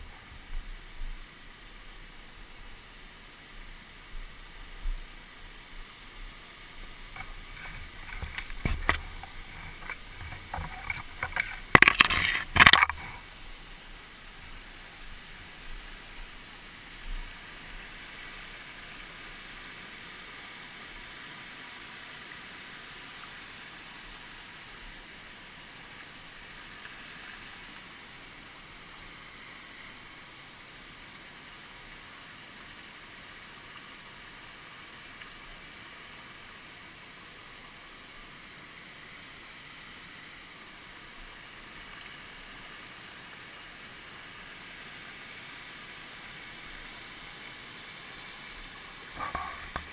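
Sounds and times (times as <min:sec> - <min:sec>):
creek rushing over boulders: 0:00.0 - 0:49.9.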